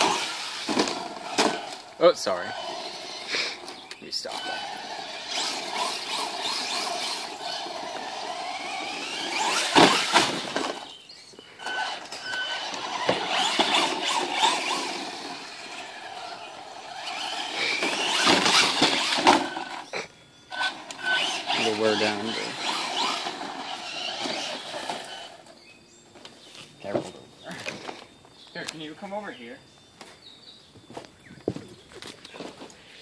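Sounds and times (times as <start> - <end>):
electric motor whining: 0.0 - 25.7.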